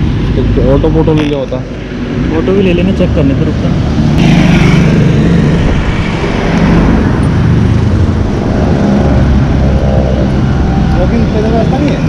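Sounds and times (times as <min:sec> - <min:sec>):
road noise: 0:00.0 - 0:12.0
vehicle engine running: 0:04.2 - 0:12.0.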